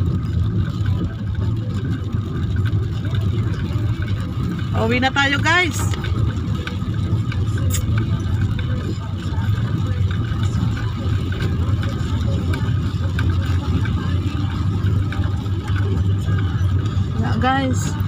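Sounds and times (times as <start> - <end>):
car engine drone: 0.0 - 18.0
tyres on wet road: 0.0 - 18.0.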